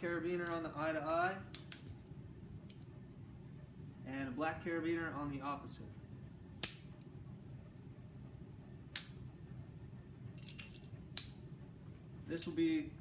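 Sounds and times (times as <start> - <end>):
metal carabiners clinking: 10.4 - 10.9, 12.3 - 12.8.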